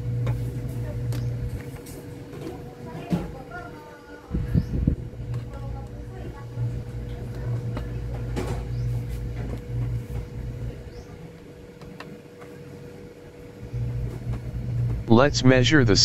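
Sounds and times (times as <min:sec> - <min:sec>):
low hum: 0:04.0 - 0:16.0.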